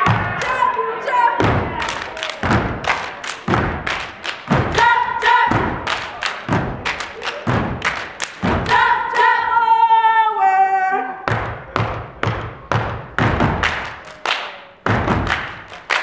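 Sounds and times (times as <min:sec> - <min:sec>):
women singing in unison: 0:08.6 - 0:11.2.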